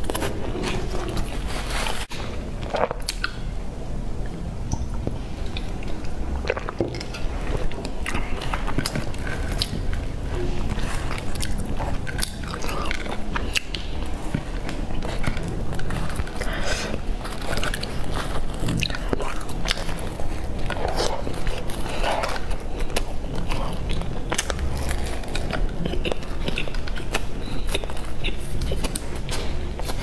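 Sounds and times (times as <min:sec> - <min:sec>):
low steady hum: 0:00.0 - 0:30.0
chewing: 0:04.7 - 0:30.0.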